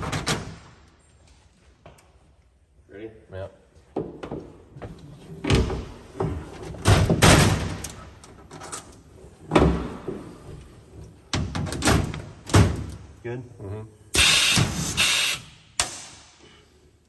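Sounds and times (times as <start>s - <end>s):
pneumatic fastening tool bangs: 14.2s - 16.2s.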